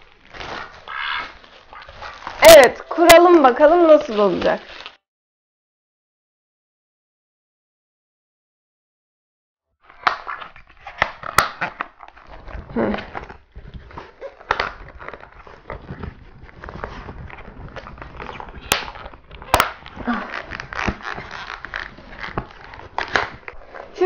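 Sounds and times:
handling rustle: 0.0s - 5.0s, 10.4s - 24.0s.

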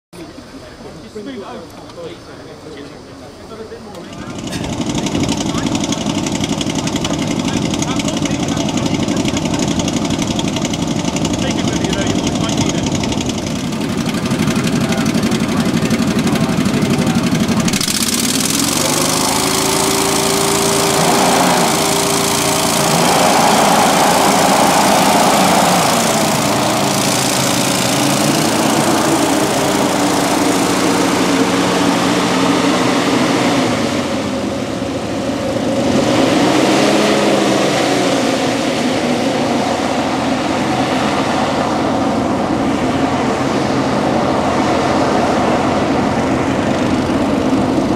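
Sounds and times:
hovercraft engine revving: 3.9s - 47.9s
rush of air: 17.8s - 34.5s.

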